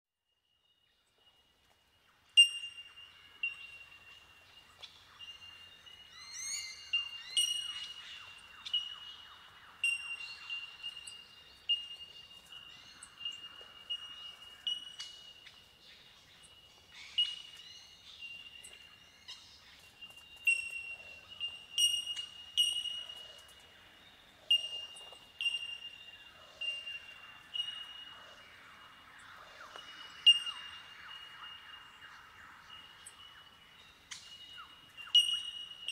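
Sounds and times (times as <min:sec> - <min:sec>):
bell-like bird calls: 0:02.3 - 0:04.3, 0:05.2 - 0:09.1, 0:09.8 - 0:15.5, 0:20.4 - 0:23.6, 0:24.4 - 0:28.4, 0:30.0 - 0:31.6, 0:33.9 - 0:35.9.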